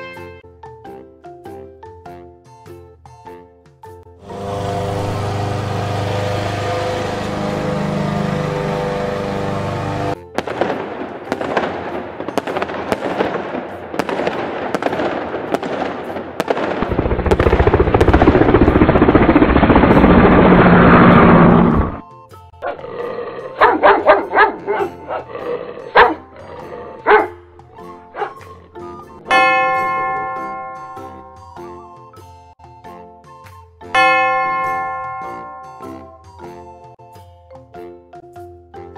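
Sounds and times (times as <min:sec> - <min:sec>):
helicopter rotor and engine: 0:04.2 - 0:10.2, 0:16.6 - 0:22.0
lawn mower engine: 0:04.2 - 0:10.2, 0:17.0 - 0:22.0
fireworks crackling and banging: 0:10.4 - 0:21.4
dog barking: 0:23.5 - 0:26.3, 0:26.9 - 0:27.4, 0:28.2 - 0:28.4.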